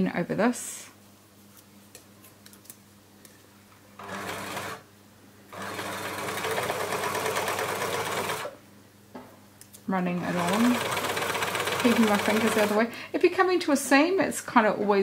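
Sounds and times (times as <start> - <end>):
overlocker stitching: 10.3 - 12.8.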